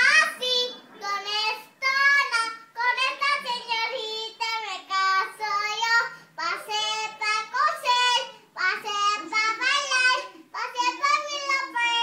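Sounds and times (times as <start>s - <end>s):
girl singing: 0.0s - 12.0s
girl breathing: 6.1s - 6.4s, 8.3s - 8.6s.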